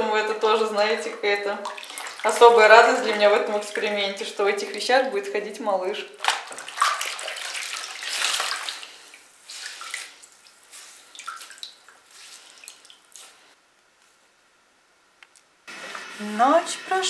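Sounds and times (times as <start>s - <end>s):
wringing wet clothes in water: 0.0s - 4.9s, 6.1s - 13.6s
water dripping: 0.7s - 4.0s, 6.2s - 13.4s
water splashing and trickling: 1.0s - 4.0s, 6.2s - 13.6s.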